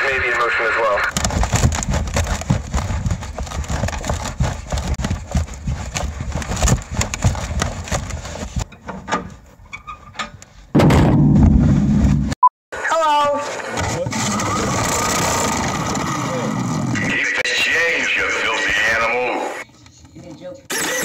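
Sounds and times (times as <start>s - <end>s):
knocks and thumps in box: 1.1s - 8.7s.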